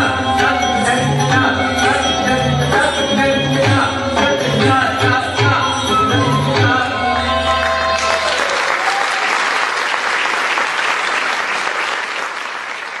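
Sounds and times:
audience applause: 7.7s - 13.0s.

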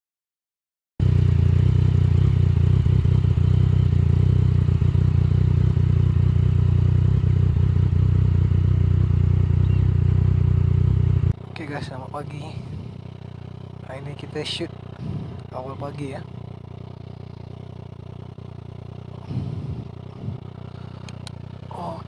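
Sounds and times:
motorcycle engine running at low revs: 1.0s - 22.0s.

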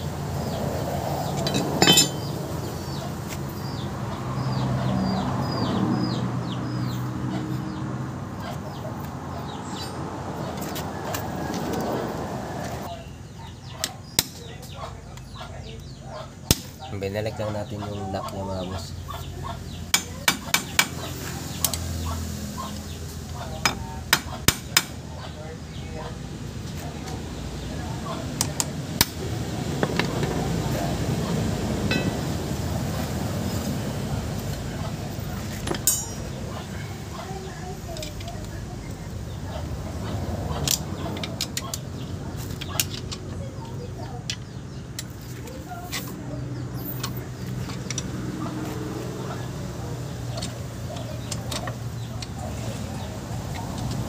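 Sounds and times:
hammer tapping metal punch: 1.4s - 2.3s, 35.7s - 36.2s
hand tool clicking on metal: 35.7s - 36.2s.

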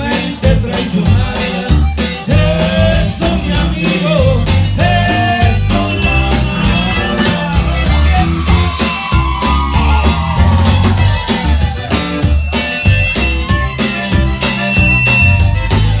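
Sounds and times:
man singing into a microphone: 0.0s - 8.3s
acoustic guitar: 0.0s - 16.0s
drum kit: 0.0s - 16.0s.

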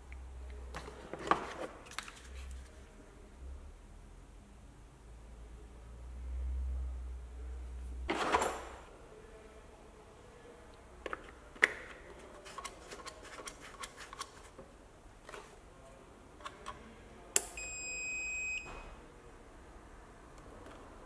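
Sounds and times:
high beep: 17.6s - 18.9s.

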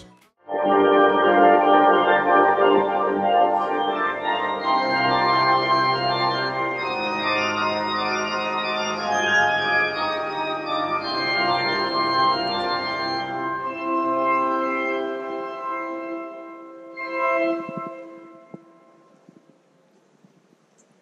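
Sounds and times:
organ playing sustained chords: 0.0s - 19.6s.

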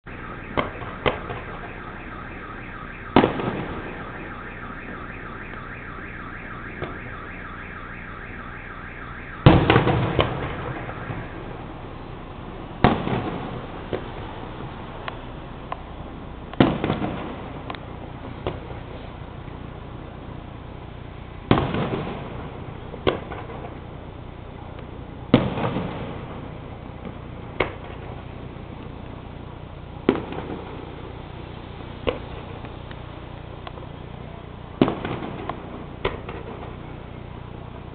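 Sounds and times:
high electronic warble: 0.1s - 12.0s
fireworks bangs: 0.1s - 14.8s, 16.6s - 17.7s, 21.4s - 24.0s, 25.3s - 28.5s, 30.0s - 32.8s, 34.7s - 37.1s.

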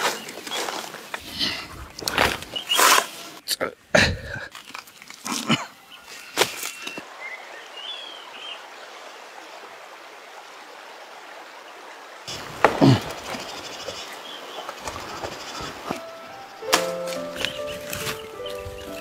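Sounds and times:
bird chirps: 2.5s - 2.9s, 13.1s - 19.0s
flowing water rushing: 7.0s - 16.4s.

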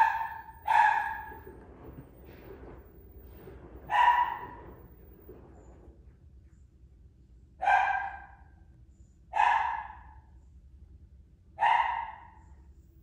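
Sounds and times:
dog barking: 0.0s - 1.5s, 3.8s - 4.8s, 7.6s - 8.6s, 9.3s - 10.3s, 11.6s - 12.5s.

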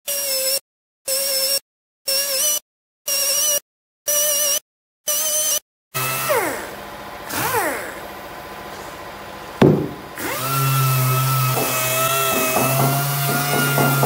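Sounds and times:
air-powered orbital sander: 6.0s - 14.0s
sharp knock: 9.6s - 10.0s.

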